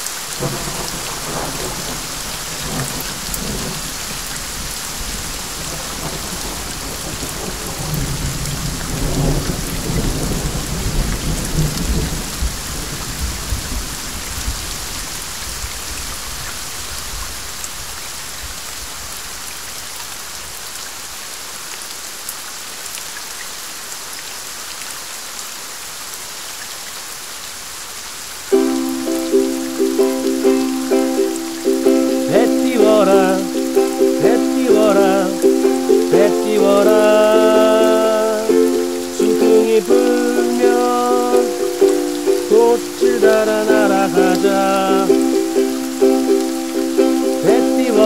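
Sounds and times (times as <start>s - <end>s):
steady rain: 0.0s - 48.0s
thunder rumbling: 0.4s - 13.8s.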